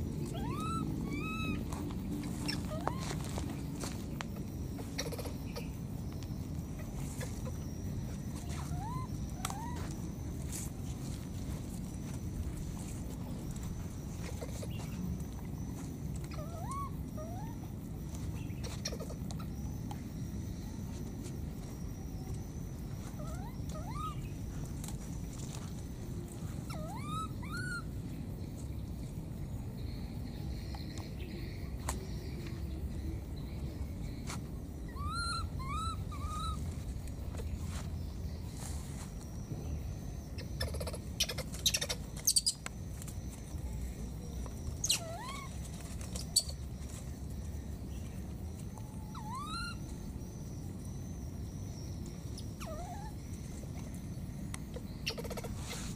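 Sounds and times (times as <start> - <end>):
faint steady high tone: 0.0 - 18.5, 19.1 - 41.0, 42.1 - 55.0
baby monkey squeaky cries: 0.2 - 1.7, 2.3 - 3.3, 4.8 - 5.8, 8.4 - 9.9, 14.1 - 14.8, 16.2 - 17.6, 18.6 - 19.6, 23.1 - 24.4, 26.6 - 27.9, 34.9 - 36.6, 40.4 - 42.6, 44.8 - 46.6, 48.8 - 49.9, 52.4 - 53.2, 55.0 - 55.9.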